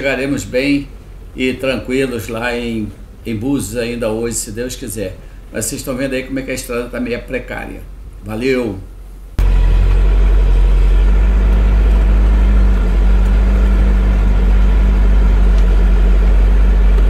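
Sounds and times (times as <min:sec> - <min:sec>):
diesel engine running: 0:09.4 - 0:17.0.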